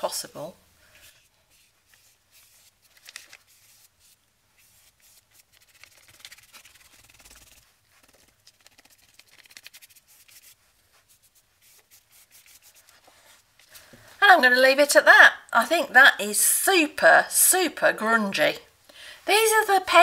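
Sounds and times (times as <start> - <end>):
paintbrush scratching on paper: 1.0 - 13.5.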